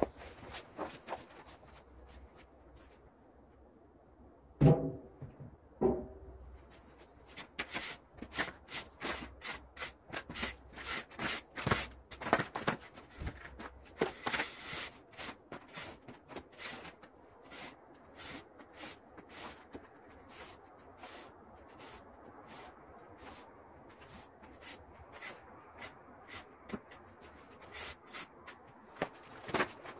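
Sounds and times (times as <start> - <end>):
knock: 4.6 - 6.2
push broom sweeping snow: 7.6 - 12.2, 13.1 - 28.8.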